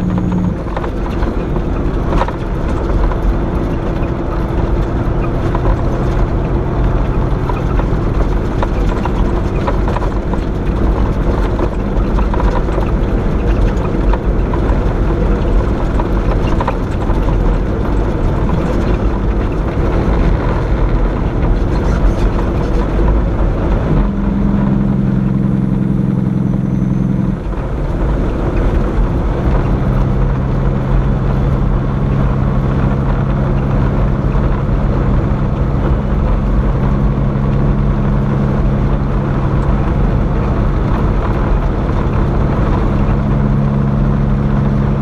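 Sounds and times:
road rumble: 0:00.0 - 0:45.0
truck diesel engine running: 0:00.0 - 0:45.0.

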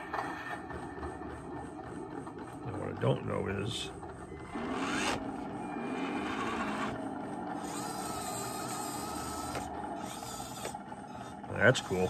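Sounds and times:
steady low hum: 0:00.0 - 0:12.0
small electric motor whining: 0:04.0 - 0:12.0.

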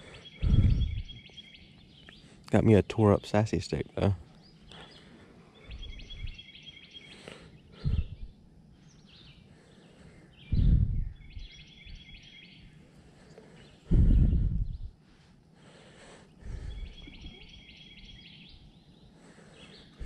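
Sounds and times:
songbird singing: 0:00.0 - 0:20.0
low rumbles or thumps: 0:00.4 - 0:01.2, 0:10.5 - 0:11.2, 0:13.9 - 0:15.0.

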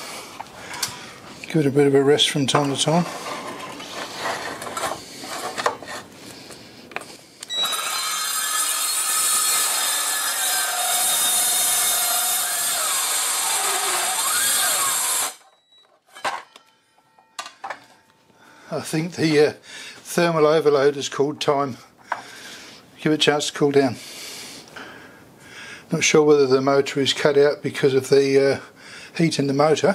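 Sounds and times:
circular saw cutting steel: 0:07.5 - 0:15.4.

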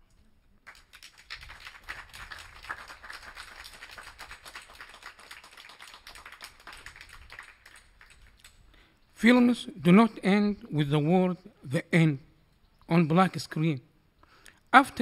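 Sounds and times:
light applause: 0:00.6 - 0:08.6.

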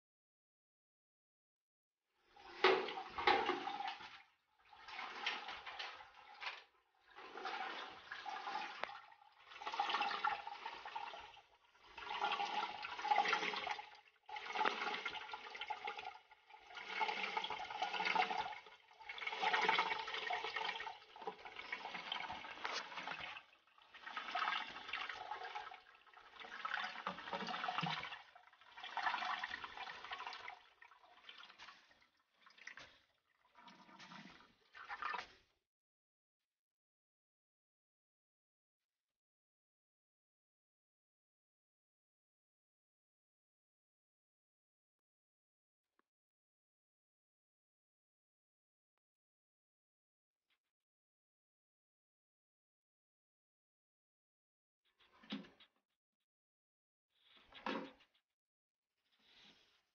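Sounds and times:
water rushing in toilet cistern: 0:02.3 - 0:35.5, 0:55.0 - 0:55.7, 0:57.2 - 0:58.1.

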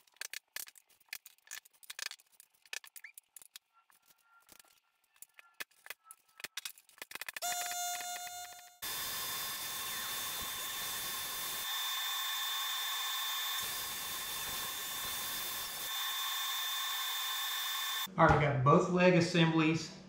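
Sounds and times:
high whining tones: 0:07.4 - 0:18.1
machine hiss: 0:08.8 - 0:18.1.

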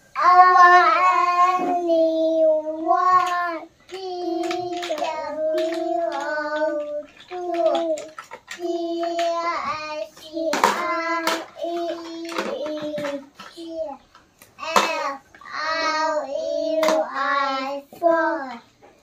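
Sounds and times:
child singing long notes: 0:00.1 - 0:08.0.

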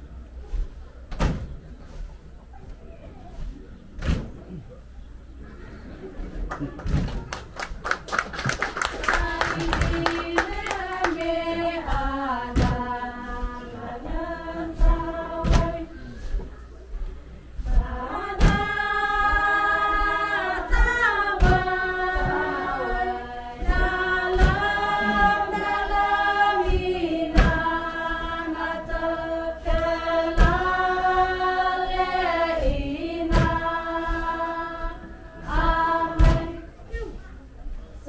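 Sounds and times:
women singing together: 0:08.6 - 0:16.5, 0:17.6 - 0:37.2
sharp knock: 0:36.2 - 0:36.5.

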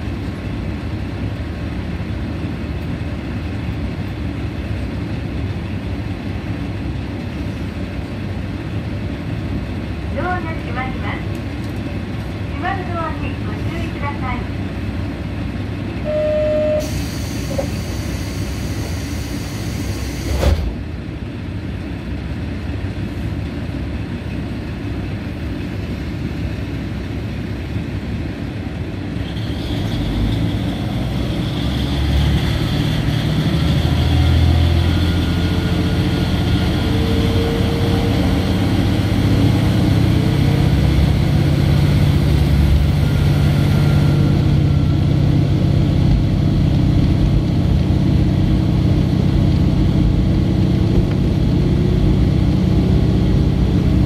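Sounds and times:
high steady tone: 0:16.0 - 0:16.9
diesel engine revving: 0:29.3 - 0:54.0.

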